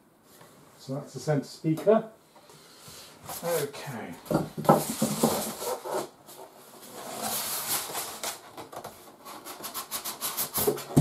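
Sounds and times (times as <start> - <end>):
foam rubbing against cardboard: 9.2 - 11.0.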